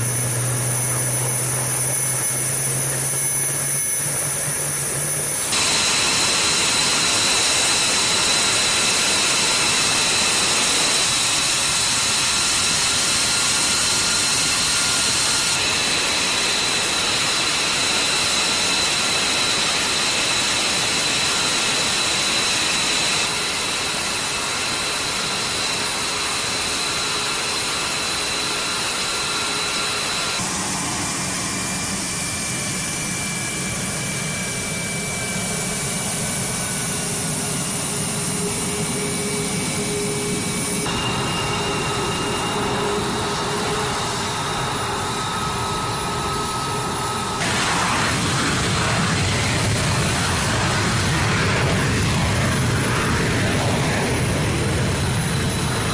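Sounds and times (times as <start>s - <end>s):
jet engine whine: 0.0s - 55.9s
low hum: 34.8s - 55.9s.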